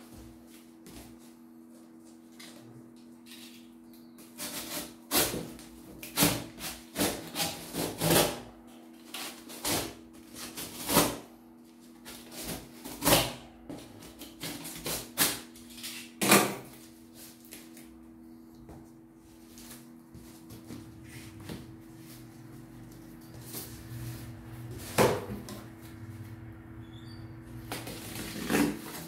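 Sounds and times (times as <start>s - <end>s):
steady low hum: 16.5s - 29.0s.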